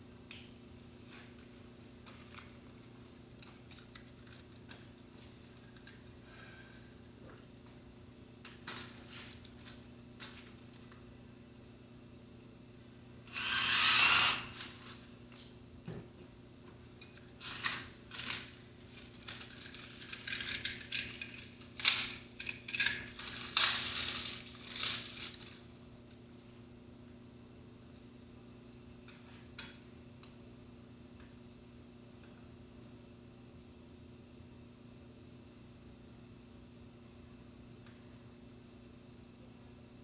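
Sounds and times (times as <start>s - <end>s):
rustling scrape: 23.0s - 25.7s.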